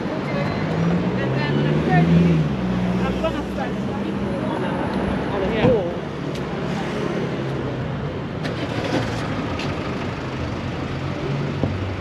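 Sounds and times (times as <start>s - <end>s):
traffic engine hum: 0.0s - 12.0s.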